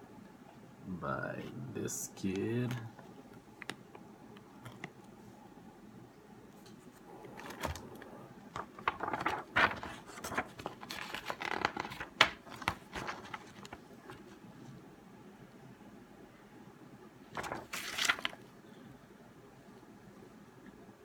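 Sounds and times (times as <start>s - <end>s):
card stock rustling: 6.9s - 14.4s, 17.3s - 18.5s
plastic wrapping crinkling: 8.6s - 14.3s, 17.4s - 18.4s.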